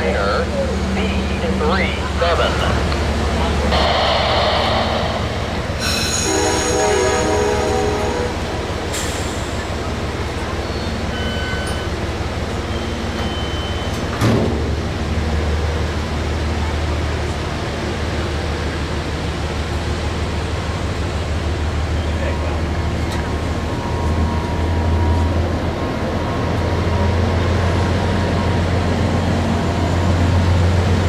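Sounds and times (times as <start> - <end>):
train rumbling: 0.0 - 31.0
short pitched tone: 3.7 - 8.5.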